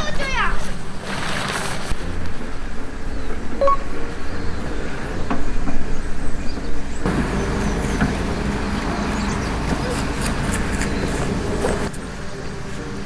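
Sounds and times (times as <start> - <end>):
tent fabric rustling: 0.0 - 2.2.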